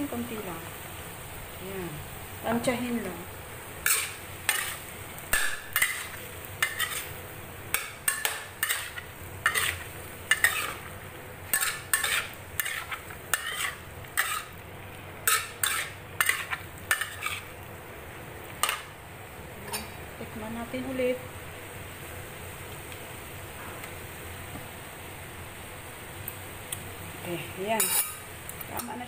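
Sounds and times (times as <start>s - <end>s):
food sizzling: 0.0s - 29.0s
spatula scraping a wok: 3.8s - 14.6s, 15.2s - 17.6s, 18.6s - 18.9s, 27.7s - 29.0s.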